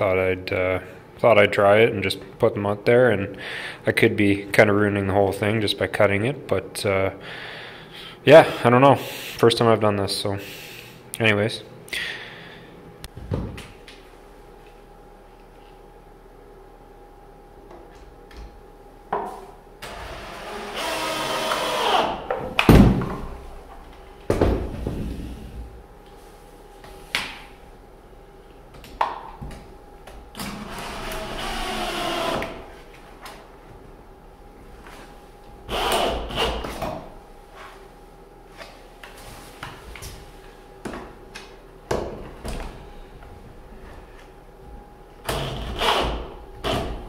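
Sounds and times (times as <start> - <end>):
cordless drill driving screws: 19.8 - 22.2.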